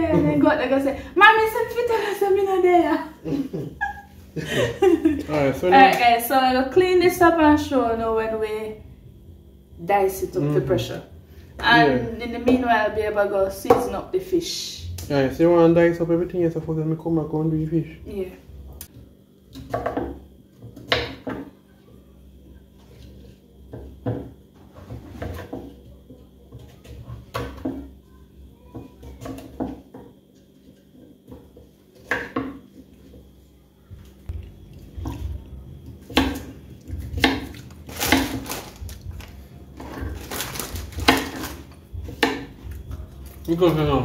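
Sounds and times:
knife chopping on wooden board: 35.9 - 38.4, 41.0 - 42.6.

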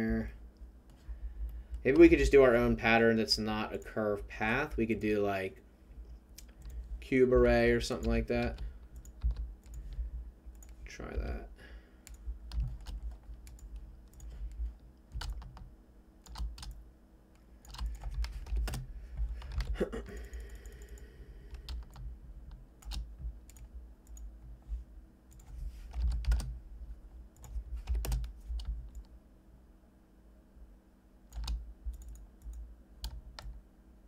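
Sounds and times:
low steady hum: 0.0 - 34.0
keyboard keys clicking: 7.9 - 9.9, 12.1 - 14.4, 15.1 - 16.8, 17.6 - 24.3, 25.3 - 26.5, 27.4 - 29.1, 31.3 - 33.6.

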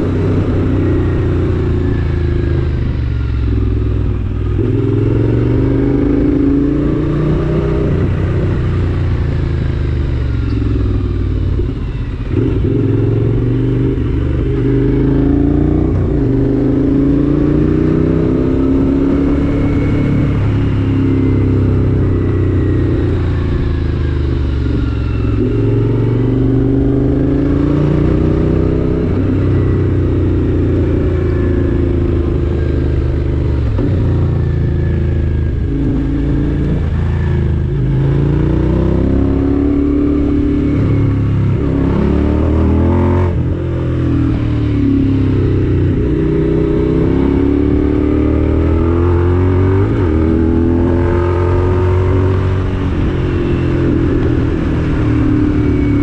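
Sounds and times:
vehicle engine revving: 0.0 - 56.0.

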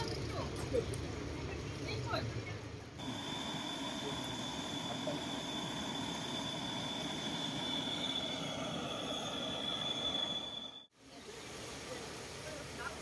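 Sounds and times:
gas burner hissing: 3.0 - 10.9
kettle whistling: 3.0 - 10.9.

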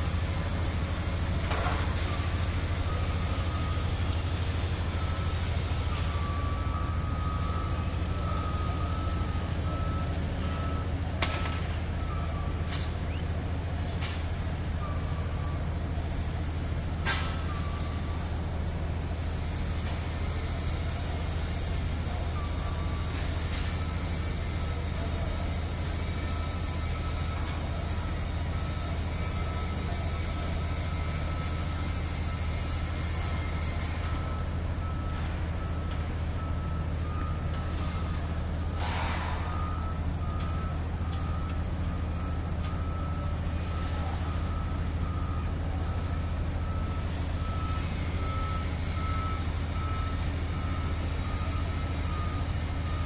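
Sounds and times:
construction machinery drone: 0.0 - 53.0
high beeping tones: 1.9 - 19.5, 21.3 - 53.0
thin high whine: 34.0 - 47.5.

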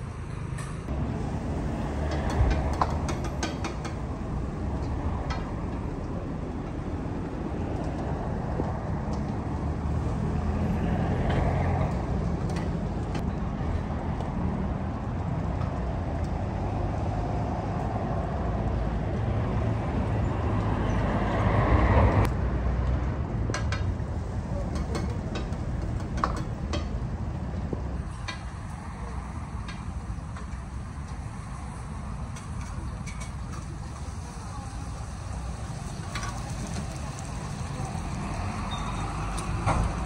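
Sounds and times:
gas burner rumbling: 0.0 - 19.2, 23.1 - 40.0.

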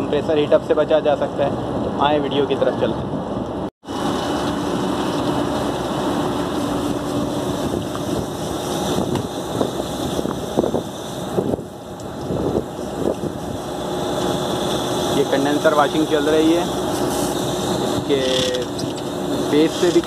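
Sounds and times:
hose jet spraying water: 4.0 - 20.0.

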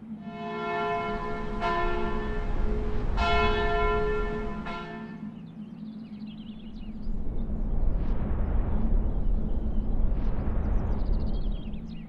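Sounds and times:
church bell tolling: 3.2 - 5.0.

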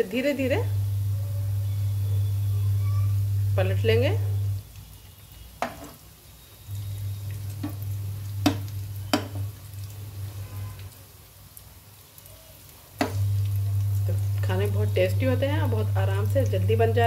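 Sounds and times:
bread deep-frying in oil: 0.0 - 17.0
steady low hum: 0.4 - 4.6, 6.7 - 10.4, 13.1 - 17.0
skimmer knocking against pan: 8.4 - 9.5.

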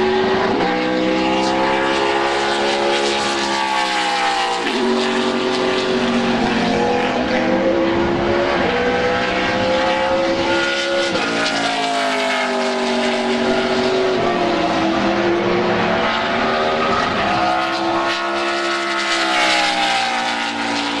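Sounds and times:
race car engines passing: 0.0 - 21.0.

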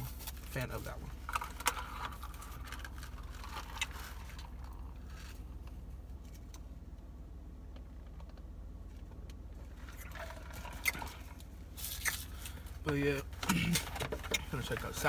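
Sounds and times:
low hum inside a car: 0.0 - 15.0
cup handling clicks and rustles: 9.8 - 15.0.

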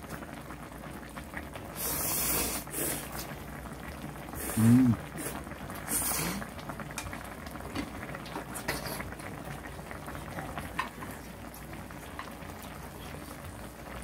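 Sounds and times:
broth bubbling: 0.3 - 14.0.

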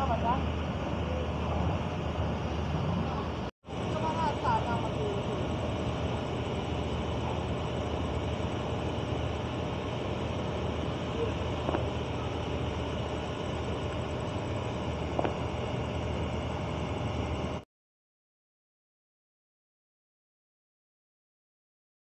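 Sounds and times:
idling machinery engine drone: 0.0 - 17.6.

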